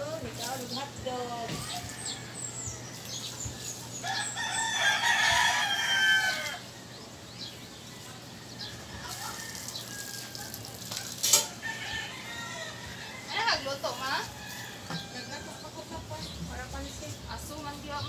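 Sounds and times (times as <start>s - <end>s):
rooster crowing: 4.0s - 6.7s, 8.0s - 10.6s, 11.4s - 15.7s.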